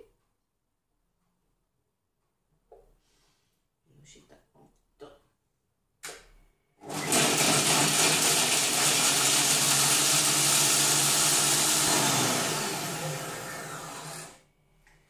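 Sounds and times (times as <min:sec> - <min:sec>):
food processor grinding cheese: 0:06.8 - 0:14.4.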